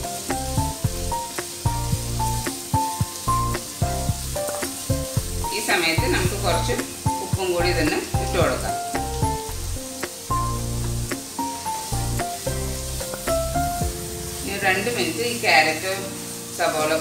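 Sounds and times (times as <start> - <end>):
background music with a beat: 0.0 - 5.5, 6.8 - 14.4
vegetables sizzling in hot oil: 0.0 - 17.0.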